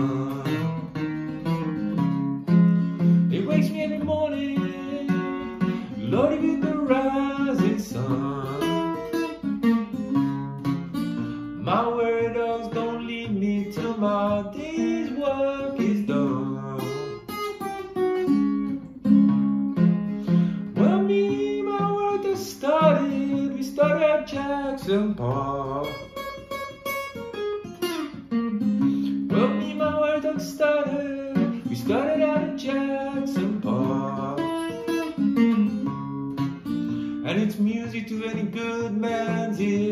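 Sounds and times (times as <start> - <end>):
man singing: 0.0 - 1.7, 3.0 - 10.0, 11.2 - 17.9, 20.2 - 26.6, 29.0 - 35.8, 36.6 - 39.9
acoustic guitar picked: 0.0 - 39.9.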